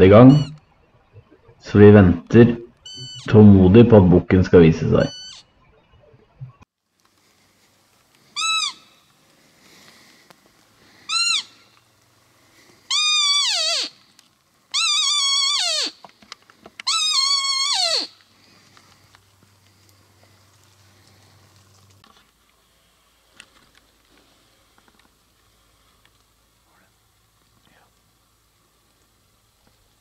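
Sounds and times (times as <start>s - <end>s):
high whistling deer call: 8.3s - 10.1s, 10.8s - 11.9s, 12.5s - 14.0s, 14.7s - 16.1s, 16.8s - 18.6s.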